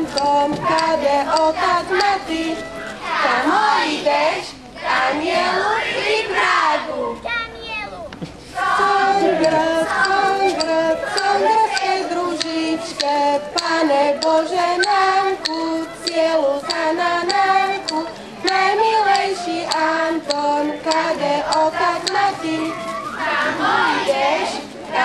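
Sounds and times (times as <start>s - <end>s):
light rhythmic knocks: 0.0s - 4.3s, 8.1s - 23.6s
children singing folk song: 0.0s - 7.2s, 8.2s - 25.0s.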